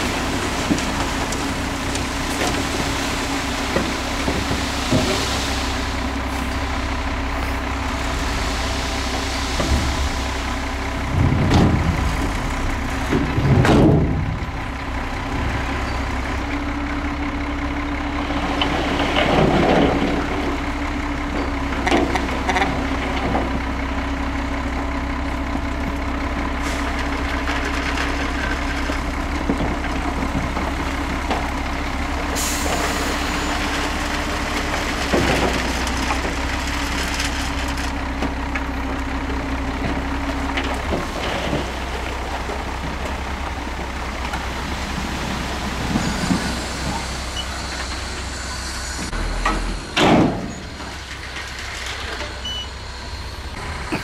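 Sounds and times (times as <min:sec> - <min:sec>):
diesel truck engines running: 0:00.0 - 0:54.0
dirt and rock unloading: 0:00.0 - 0:54.0.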